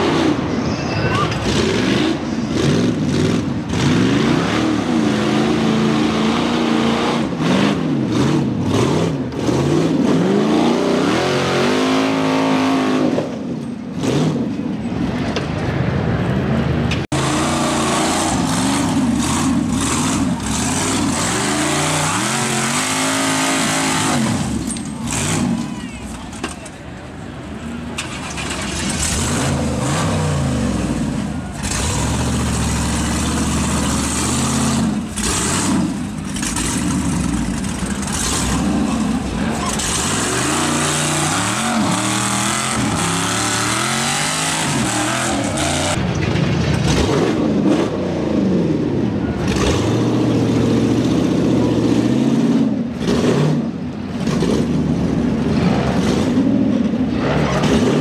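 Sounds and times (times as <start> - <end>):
buggy engine revving: 1.2 - 26.7, 27.4 - 58.0.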